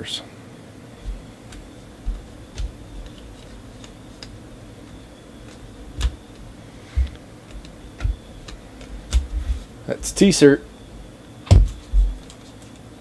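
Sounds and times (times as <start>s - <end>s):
trading cards flipped by hand: 2.5s - 4.4s, 5.4s - 6.2s.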